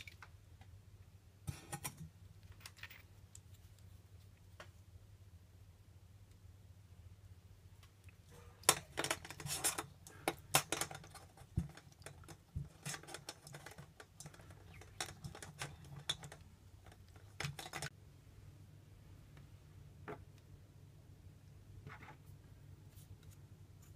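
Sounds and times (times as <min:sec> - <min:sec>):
metal parts clicking and scraping in a bowl: 0:08.6 - 0:17.9.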